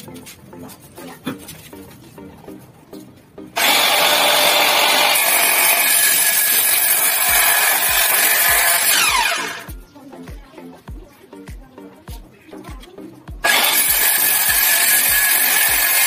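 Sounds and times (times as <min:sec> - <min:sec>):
mitre saw cutting wood: 0:03.6 - 0:09.7, 0:13.4 - 0:16.0
saw motor spinning down: 0:03.6 - 0:09.7, 0:13.4 - 0:16.0.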